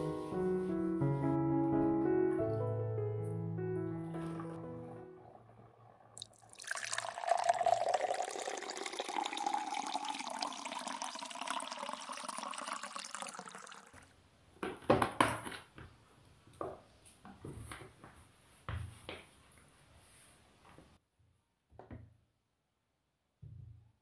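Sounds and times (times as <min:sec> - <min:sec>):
water running into container: 0:03.9 - 0:14.1.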